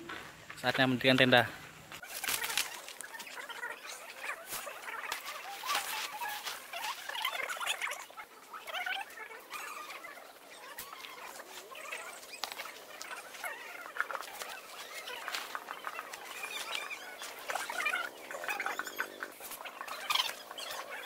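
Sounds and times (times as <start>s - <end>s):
birds chirping: 0.0s - 21.0s
tent poles clicking and knocking: 2.0s - 3.4s, 4.5s - 7.6s
tent fabric rustling: 2.0s - 8.0s, 10.1s - 18.7s.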